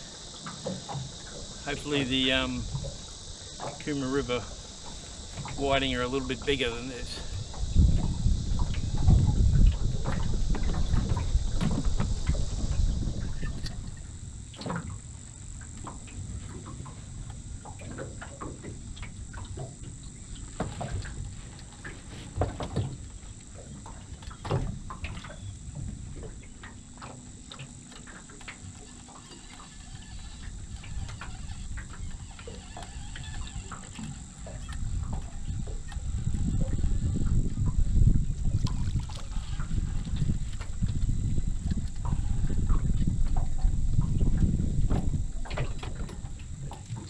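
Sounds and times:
thin high hiss: 0.0s - 9.1s
wind rumbling on microphone: 0.0s - 47.0s.

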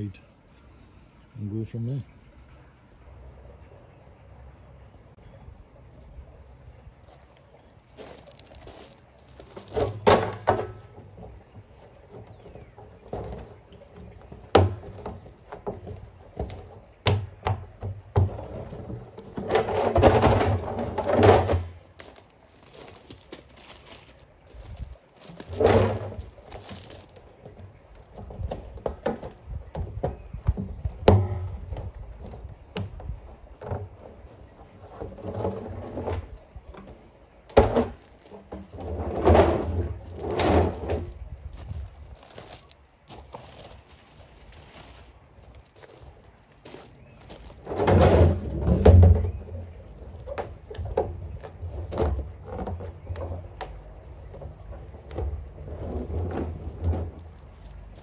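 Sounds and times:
barrel scraping and rubbing: 7.0s - 58.0s
hollow knocks on plastic barrels: 8.8s - 22.2s, 25.2s - 41.1s, 47.6s - 58.0s.

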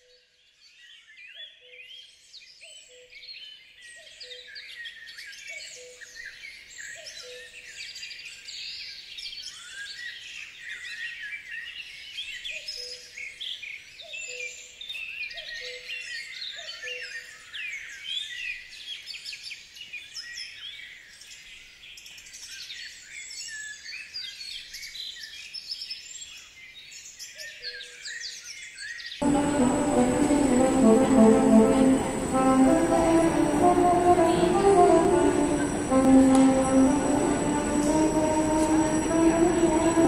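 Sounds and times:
low note: 29.2s - 40.0s.

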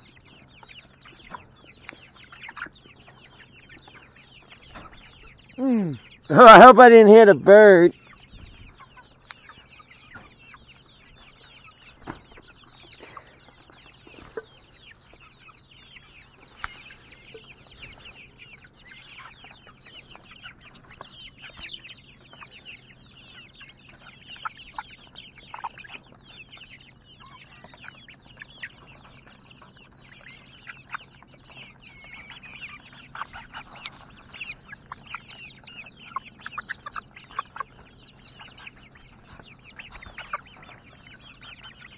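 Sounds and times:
chickens clucking and calling: 0.0s - 41.9s.

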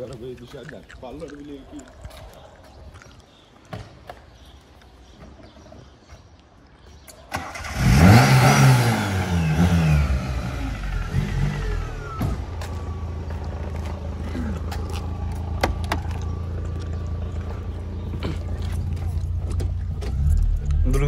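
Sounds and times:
engine cranking and starting: 7.3s - 10.3s
engine revving and idling: 7.4s - 21.0s.

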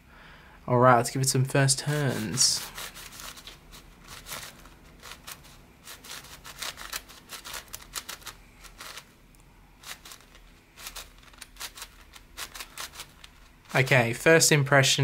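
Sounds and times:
puzzle cube layers clicking: 4.1s - 9.0s, 9.8s - 13.4s.

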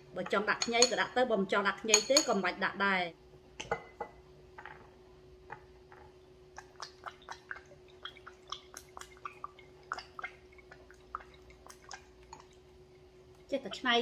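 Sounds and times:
sauce dripping and splatting: 5.5s - 13.5s.

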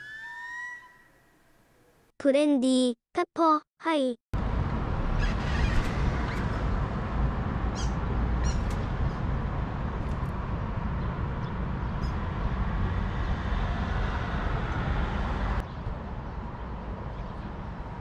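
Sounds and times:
low outdoor rumble: 4.4s - 18.0s
bird chirps: 7.7s - 8.8s.

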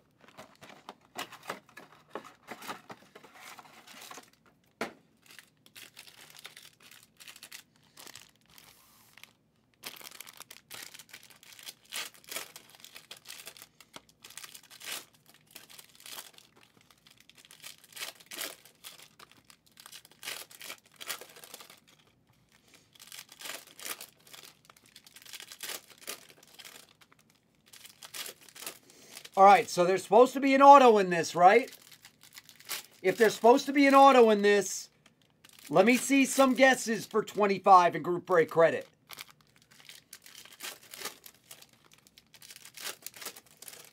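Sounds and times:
foil packs tearing and crinkling: 5.2s - 34.4s, 38.3s - 43.9s.

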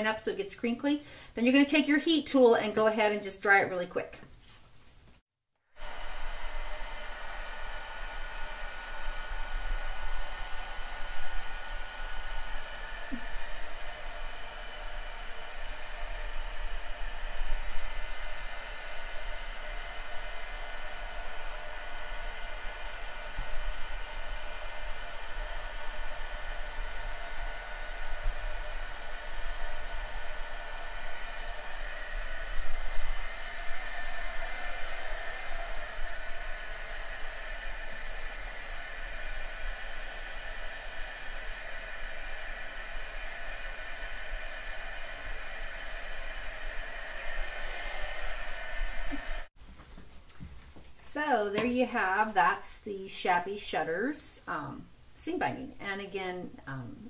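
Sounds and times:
heat gun blowing air: 5.7s - 49.6s.

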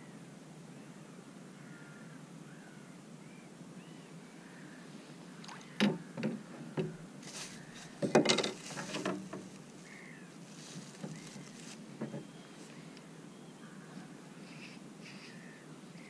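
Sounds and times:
faint bird calls: 0.8s - 16.0s
fishing gear knocking and rattling: 5.8s - 7.0s, 8.0s - 9.5s.

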